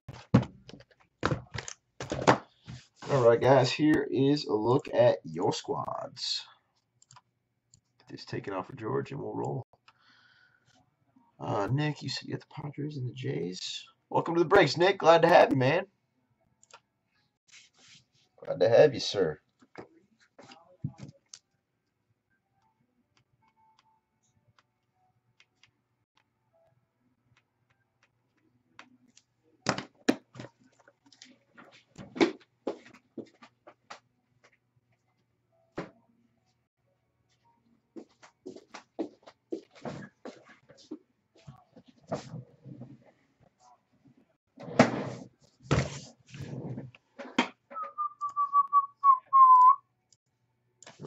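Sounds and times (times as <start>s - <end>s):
person whistling: 47.8s - 49.8s.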